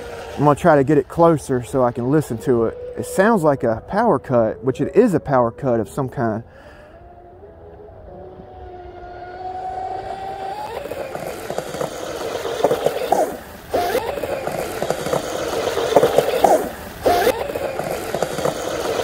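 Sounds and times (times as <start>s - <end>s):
electric motor high whine: 0.0s - 19.0s
water spray hiss: 10.8s - 19.0s.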